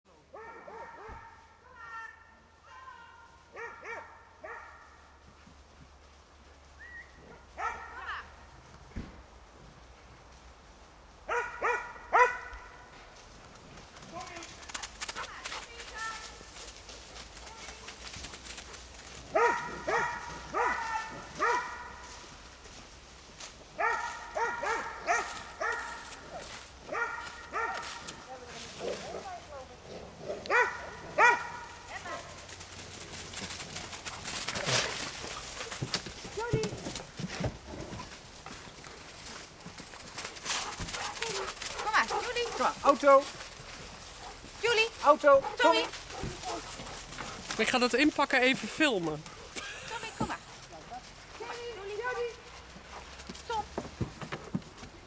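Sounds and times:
dogs barking: 0.3s - 1.5s, 3.5s - 5.0s, 7.3s - 8.1s, 11.3s - 12.8s, 19.3s - 22.1s, 23.8s - 28.2s, 30.2s - 32.4s, 40.6s - 42.9s.

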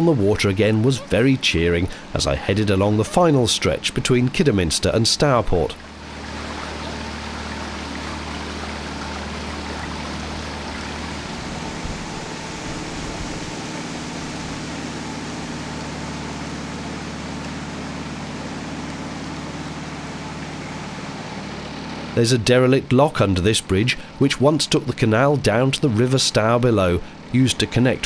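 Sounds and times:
outboard motor humming: 0.0s - 28.0s
water rushing: 0.0s - 28.0s.

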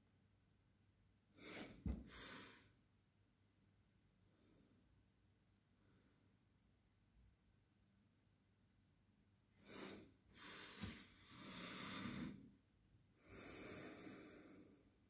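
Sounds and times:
faint breathing: 9.6s - 12.5s, 13.2s - 15.0s.

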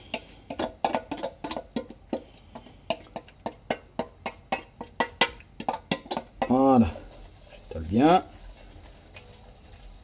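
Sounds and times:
spoon knocking metal colander: 2.9s - 6.6s.

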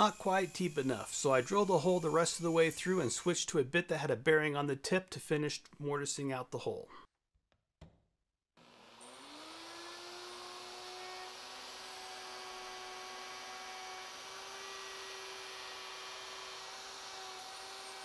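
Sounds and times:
electric router running: 8.6s - 18.0s.

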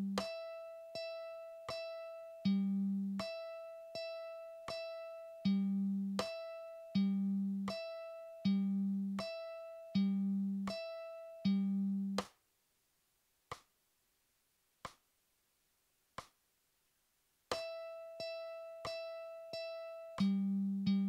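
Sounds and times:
mandolin strings plucked: 0.0s - 12.2s, 17.5s - 21.0s
metronome clicks: 18.8s - 21.0s.

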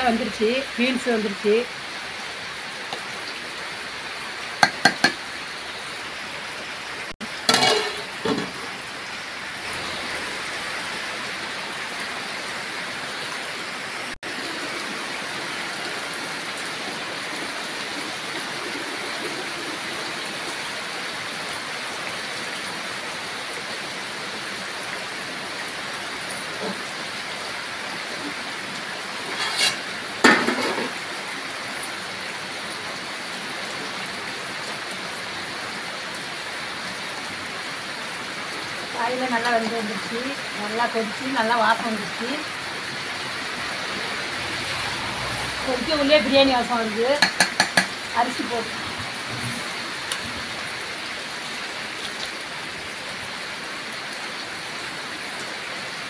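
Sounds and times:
heavy rain: 0.0s - 56.0s
metal ladle clinking on pot: 7.5s - 8.5s, 47.2s - 47.9s.

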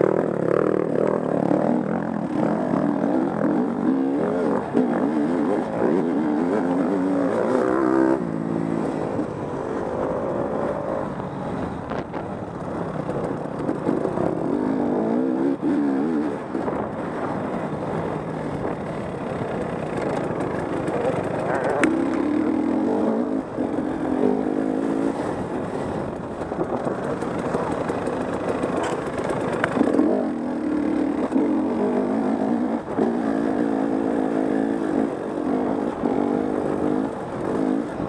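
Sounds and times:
dirt bike engine revving: 0.0s - 9.1s.

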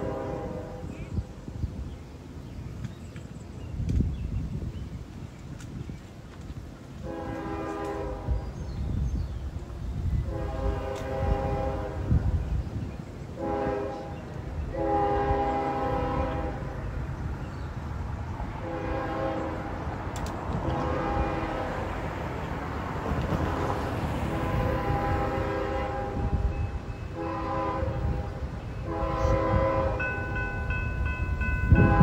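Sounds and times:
locomotive air horn blasts: 0.0s - 1.2s, 7.0s - 8.6s, 9.7s - 12.4s, 13.4s - 17.0s, 18.6s - 19.8s, 20.6s - 22.0s, 24.3s - 32.0s
low rumble of train: 0.0s - 32.0s.

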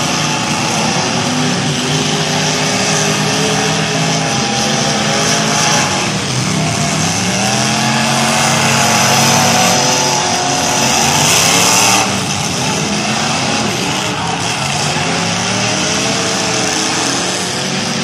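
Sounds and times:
race car engines revving: 0.0s - 18.0s.

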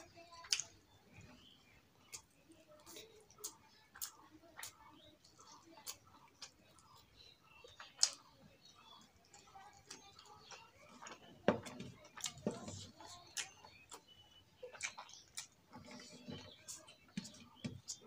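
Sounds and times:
mouth smacking while chewing: 12.0s - 18.0s.

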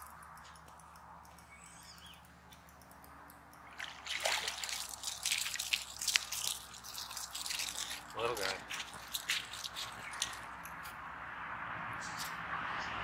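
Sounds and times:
fish splashing in water: 3.6s - 10.4s.

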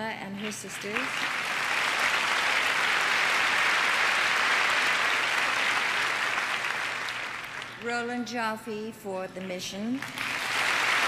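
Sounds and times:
audience applauding: 0.4s - 7.9s, 10.0s - 11.0s.

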